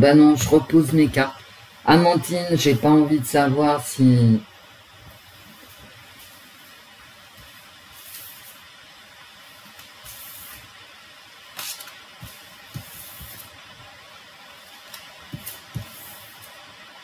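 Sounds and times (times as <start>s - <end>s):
cards shuffling: 11.5s - 13.5s.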